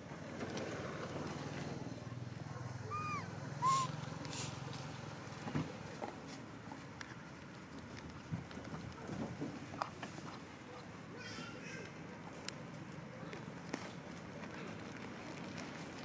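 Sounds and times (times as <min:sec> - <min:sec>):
monkey chirps: 0:02.8 - 0:04.1
dry coconut fibres rustling: 0:11.8 - 0:16.0.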